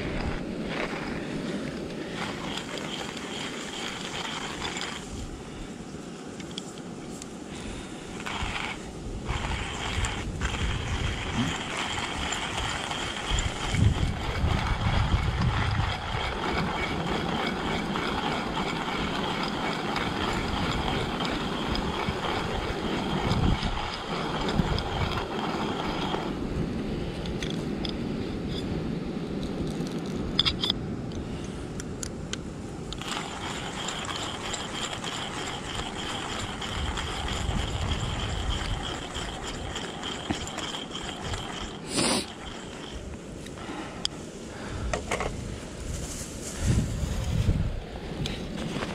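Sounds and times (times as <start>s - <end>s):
hand coffee grinder grinding: 0.0s - 5.4s, 8.1s - 28.6s, 32.9s - 44.1s, 48.2s - 48.9s.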